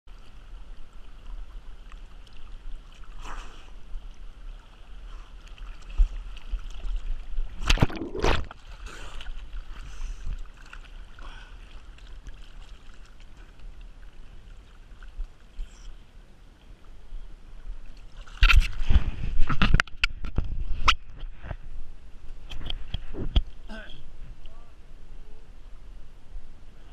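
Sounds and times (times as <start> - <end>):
water splashes: 0.1 - 21.1
river water swirling and lapping: 0.1 - 26.9.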